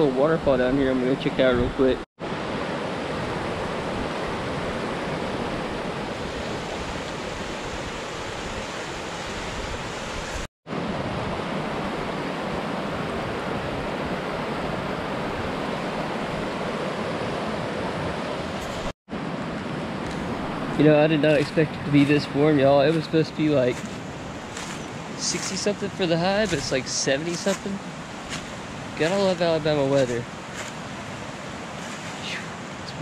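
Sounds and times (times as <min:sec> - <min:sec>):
creek rushing over rocks: 0:20.0 - 0:33.0.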